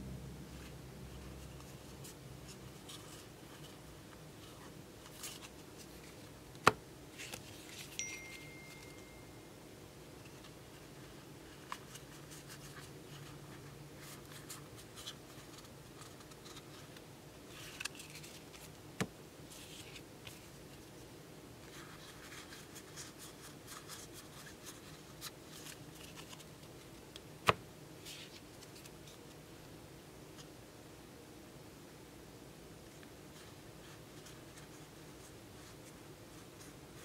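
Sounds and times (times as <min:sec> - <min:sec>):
trading cards rustling: 0:07.1 - 0:09.3, 0:17.5 - 0:18.8.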